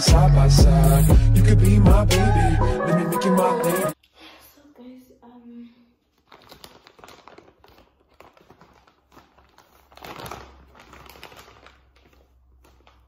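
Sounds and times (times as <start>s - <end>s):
plastic bag crinkling: 6.0s - 13.0s.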